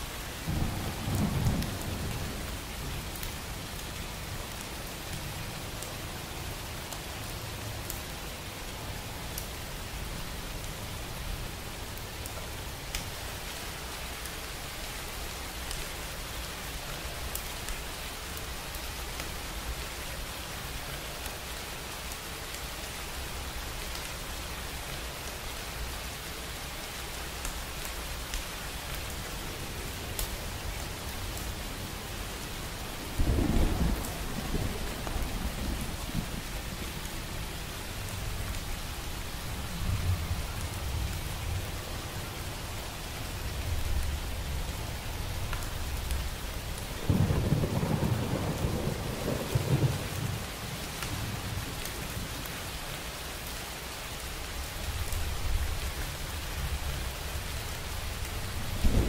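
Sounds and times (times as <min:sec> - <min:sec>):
steady rain falling: 0:00.0 - 0:59.0
thunder rumbling: 0:33.0 - 0:37.1, 0:47.0 - 0:50.4, 0:58.5 - 0:59.0.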